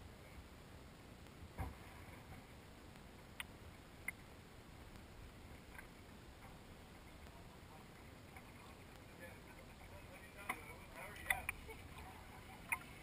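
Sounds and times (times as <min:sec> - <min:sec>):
faint sharp ticks: 0:02.9 - 0:04.2.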